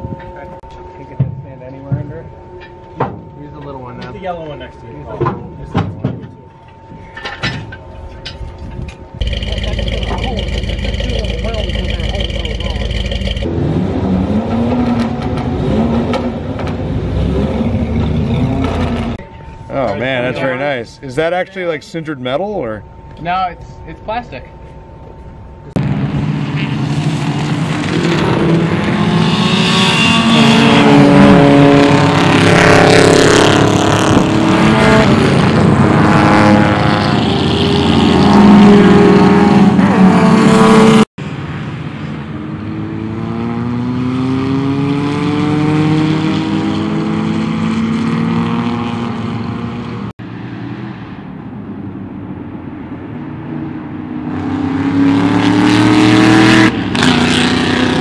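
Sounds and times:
race car engines passing: 9.2 - 21.4, 25.6 - 58.0.

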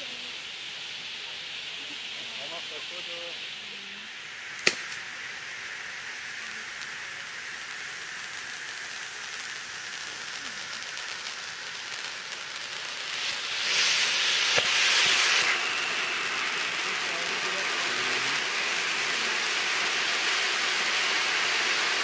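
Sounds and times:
ground fireworks hissing: 0.0 - 22.0
firework pop: 4.5 - 5.1, 13.1 - 15.6.

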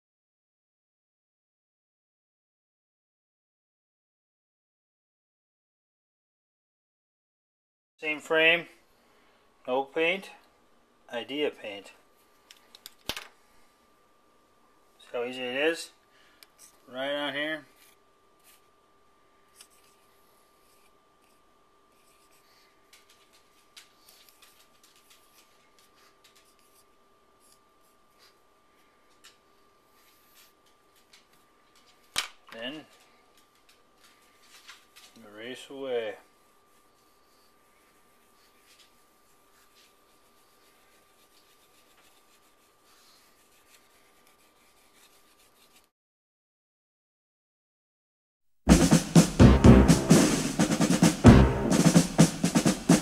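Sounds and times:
faint steady hum: 8.0 - 45.8
faint eraser rubbing: 17.6 - 18.7, 19.5 - 22.8, 24.0 - 29.0, 36.0 - 45.9
marker scratching on board: 37.9 - 45.9.

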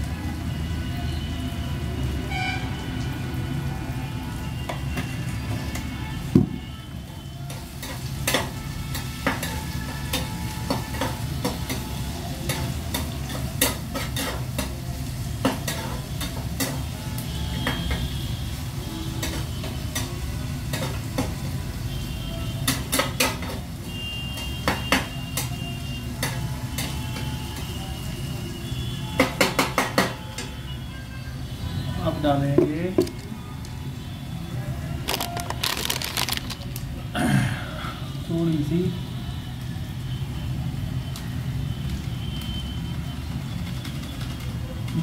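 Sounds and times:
food sizzling: 35.0 - 37.1.

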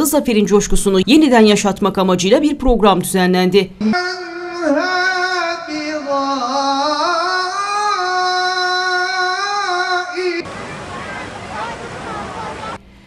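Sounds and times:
man singing into a microphone: 3.8 - 10.5.

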